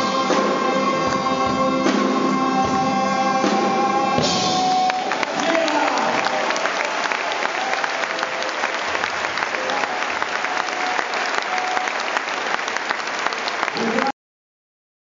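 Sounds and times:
audience applauding: 4.0s - 14.2s.

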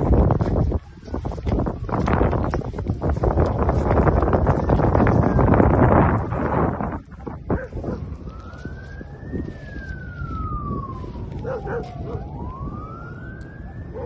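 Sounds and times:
siren wailing: 4.0s - 14.0s
short siren chirps: 8.1s - 14.0s.

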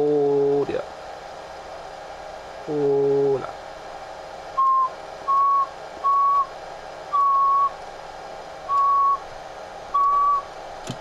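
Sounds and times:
person whistling steady notes: 4.6s - 6.5s, 7.2s - 7.7s, 8.7s - 9.2s.

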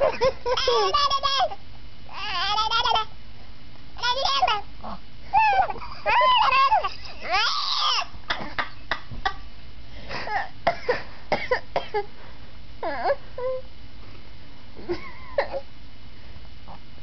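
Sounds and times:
baby squeaky yelps: 0.7s - 3.1s, 5.3s - 8.1s.

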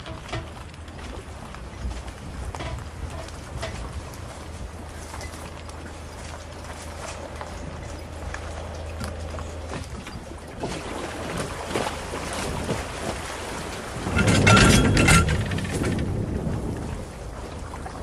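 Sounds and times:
water sloshing around hull: 0.0s - 18.0s
clinks and knocks: 14.1s - 16.1s.

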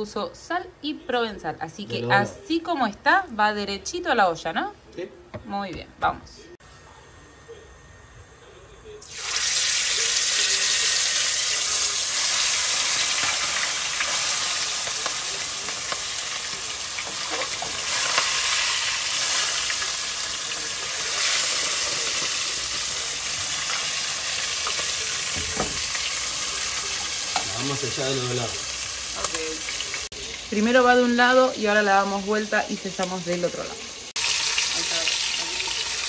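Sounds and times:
meat sizzling in hot oil: 9.0s - 36.0s.

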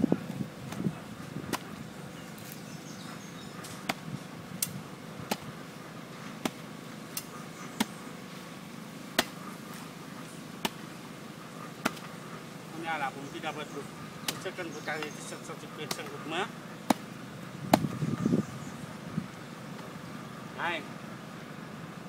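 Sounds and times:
machete chopping coconut husk: 0.6s - 2.6s, 3.6s - 5.7s, 6.3s - 8.0s, 9.1s - 9.9s, 10.6s - 11.0s, 11.8s - 12.2s, 12.8s - 18.2s.

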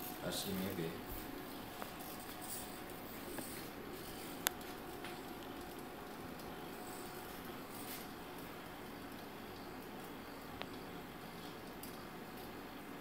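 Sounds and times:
faint hum and hiss: 0.0s - 13.0s.

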